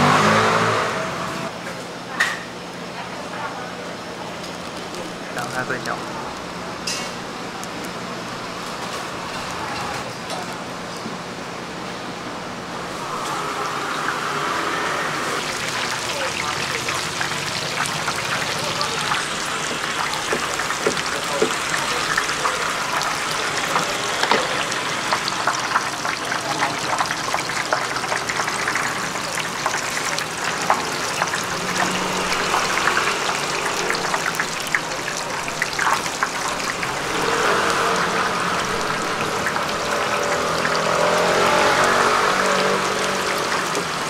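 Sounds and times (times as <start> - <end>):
oil sizzling and crackling: 12.8 - 44.0.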